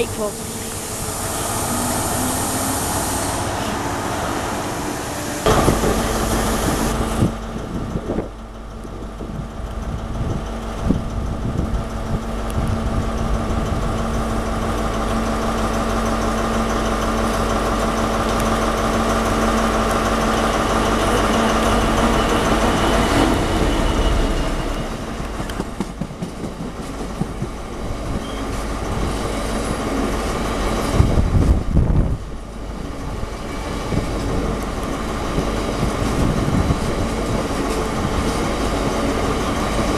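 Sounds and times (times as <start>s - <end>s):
diesel locomotive engine droning: 0.0s - 39.9s.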